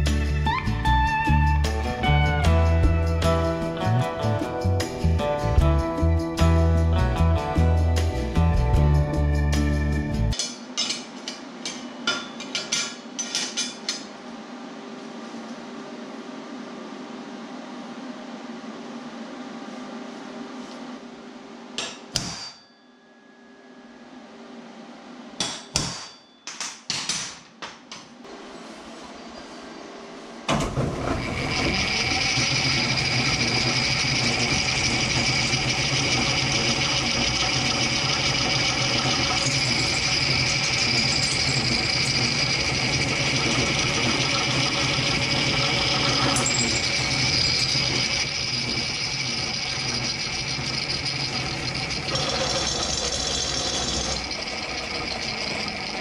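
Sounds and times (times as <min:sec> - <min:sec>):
drill press drilling steel: 0:30.6 - 0:56.0.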